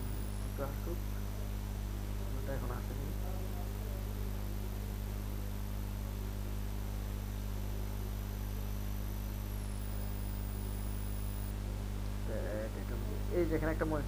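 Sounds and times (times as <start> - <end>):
high-pitched whine: 0.0 - 1.5, 7.7 - 11.6
steady electrical hum: 0.0 - 14.0.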